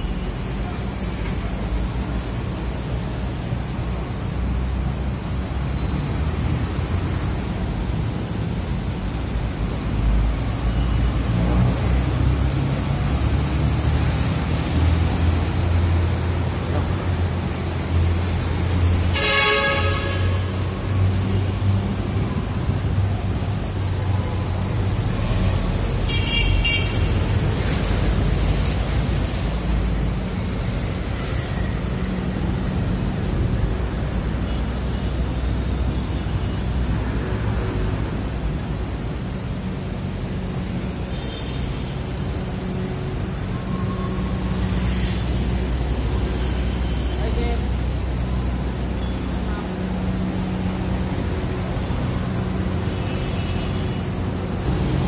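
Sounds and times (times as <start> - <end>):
road traffic rumble: 0.0 - 55.0
vehicle horn beeps: 19.1 - 20.6, 26.0 - 27.1.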